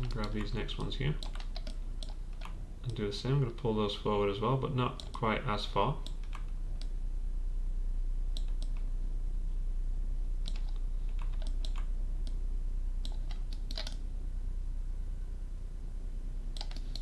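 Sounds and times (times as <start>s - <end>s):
steady low hum: 0.0s - 17.0s
mouse and keyboard clicks: 13.0s - 14.0s, 16.6s - 17.0s.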